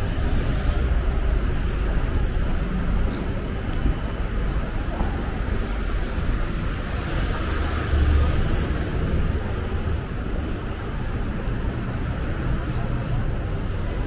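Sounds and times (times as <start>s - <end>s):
road traffic rumble: 0.0s - 14.0s
cars passing close by: 5.6s - 10.7s.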